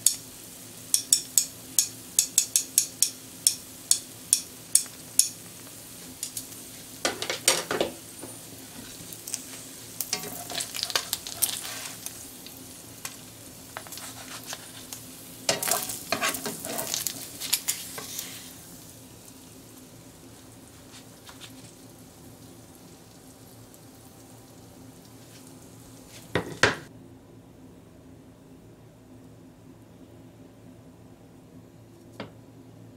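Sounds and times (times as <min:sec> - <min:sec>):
pancakes and bacon sizzling: 0:00.0 - 0:26.9
spatula scraping pan: 0:10.0 - 0:12.2, 0:13.7 - 0:18.6.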